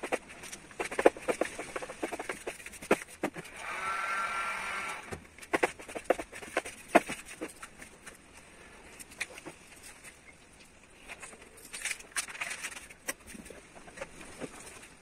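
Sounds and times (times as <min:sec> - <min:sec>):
hand rubbing vinyl film: 0:00.0 - 0:03.8.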